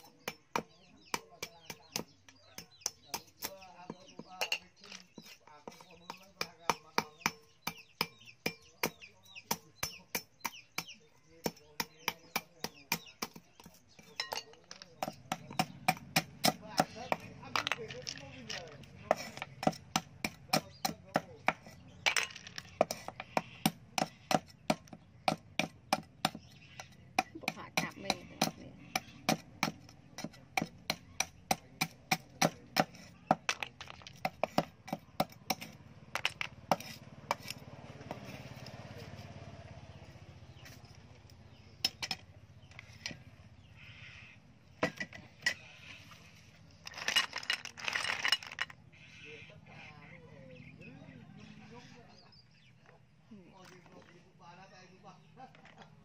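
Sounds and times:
knife chopping on wooden block: 5.1 - 14.2, 14.8 - 18.0, 18.8 - 38.7.

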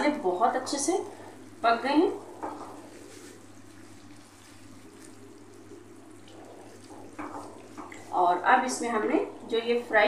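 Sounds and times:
spatula stirring: 0.0 - 9.5
gravy bubbling in a pan: 0.0 - 10.0.

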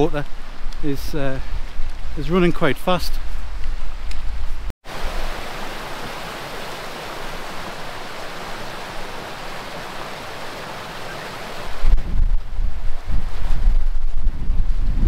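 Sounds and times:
stream rushing over rocks: 4.8 - 12.0
wind rumble on microphone: 11.6 - 15.0.

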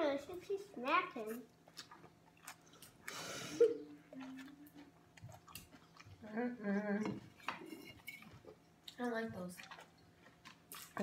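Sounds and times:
chewing and mouth sounds: 0.8 - 11.0.

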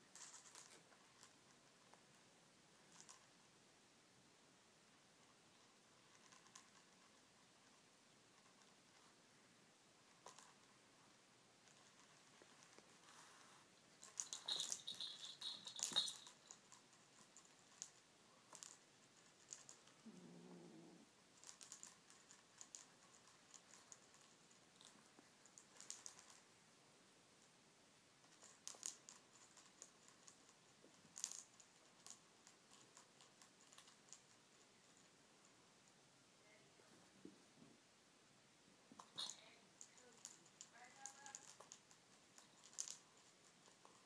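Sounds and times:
kitten growling: 19.9 - 21.2.

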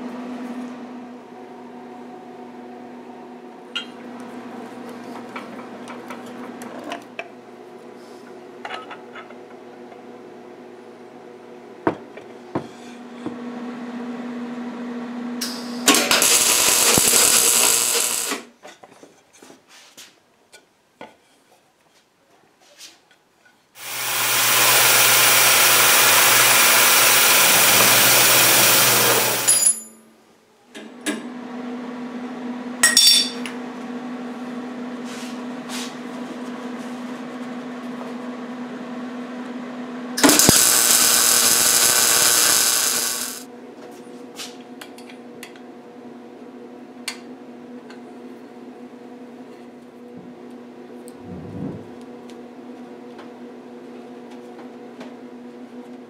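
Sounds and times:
end mill cutting steel: 15.4 - 18.5, 23.8 - 29.8, 40.2 - 43.4
mig welding: 15.4 - 18.5, 23.8 - 29.8, 40.2 - 43.5
steady machine hum: 15.4 - 18.5, 23.8 - 29.6, 40.2 - 43.5.

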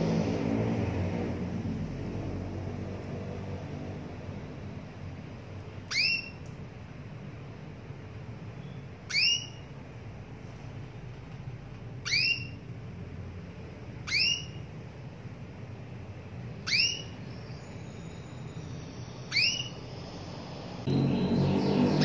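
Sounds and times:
canary upward chirp: 5.8 - 6.5, 8.5 - 9.8, 12.0 - 12.7, 14.0 - 14.7, 16.5 - 22.0.

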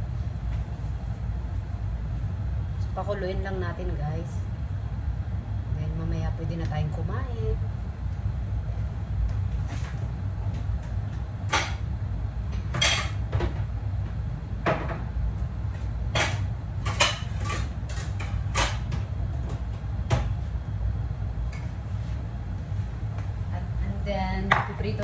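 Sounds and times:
steady low rumble: 0.0 - 12.8.

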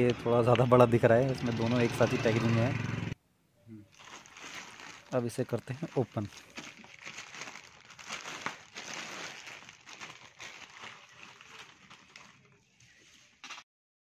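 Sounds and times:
plastic mailer crinkling: 3.9 - 12.6.

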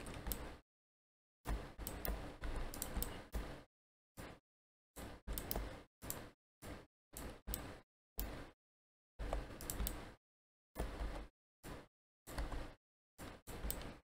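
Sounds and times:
keyboard and mouse clicks: 0.0 - 0.6, 1.5 - 3.6, 5.0 - 6.3, 7.2 - 8.5, 9.2 - 10.2, 10.8 - 11.3, 12.3 - 14.0.

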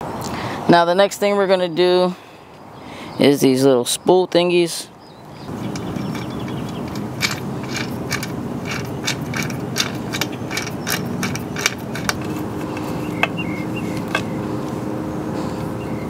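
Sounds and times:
hand tool clicking: 5.7 - 13.4.

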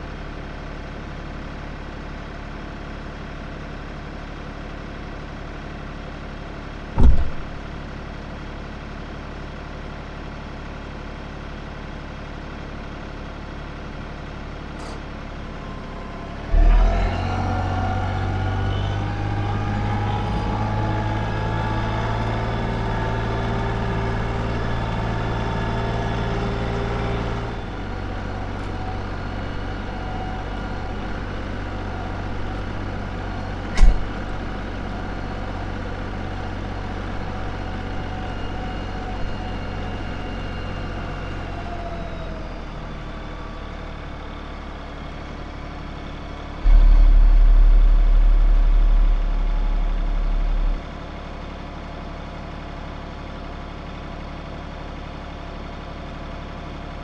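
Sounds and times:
tractor engine running: 0.0 - 57.0
sharp knock: 7.0 - 7.5, 46.7 - 49.4
loud low rumble: 7.0 - 7.8, 15.2 - 21.8, 45.0 - 52.1.

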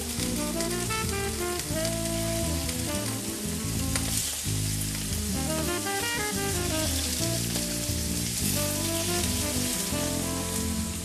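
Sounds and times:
background music with stepped melody: 0.0 - 11.0
meat sizzling in a frying pan: 0.0 - 11.0.

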